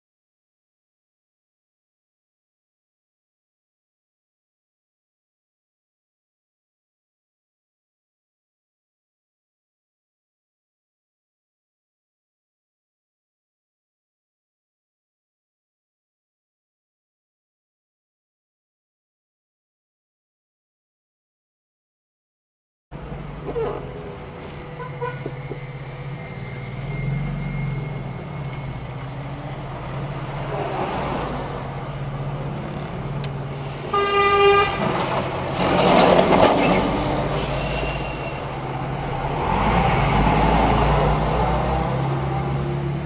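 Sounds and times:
passing vehicles rushing: 23.0 - 43.0
car horn honk: 24.6 - 25.6, 33.9 - 35.0.

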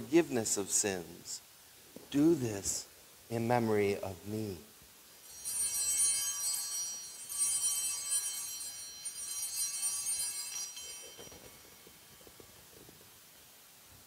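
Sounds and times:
altar bells ringing: 5.1 - 12.9.

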